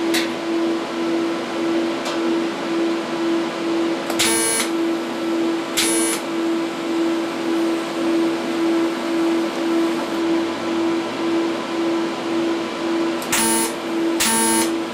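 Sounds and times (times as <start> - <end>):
welding arc buzzing: 4.1 - 4.8, 5.8 - 6.3, 13.2 - 14.9.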